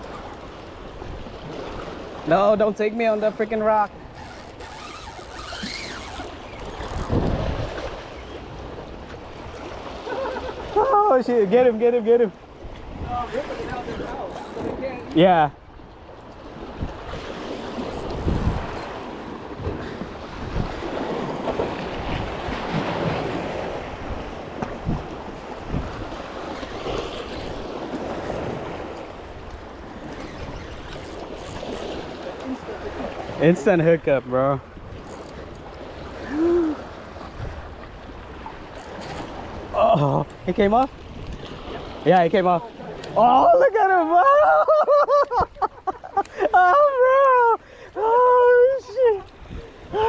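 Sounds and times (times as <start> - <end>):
small waves breaking on rocks: 0.0 - 15.5, 16.1 - 44.3
wind buffeting microphone: 5.6 - 9.9, 12.5 - 15.1, 15.8 - 33.4.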